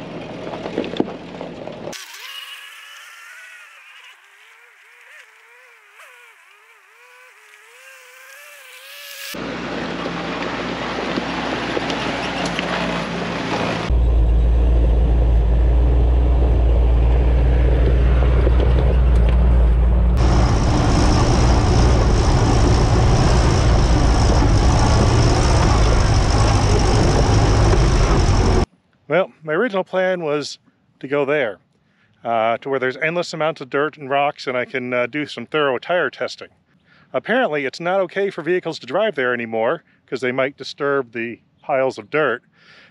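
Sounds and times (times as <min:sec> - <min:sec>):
engine running under load: 0:09.2 - 0:28.7.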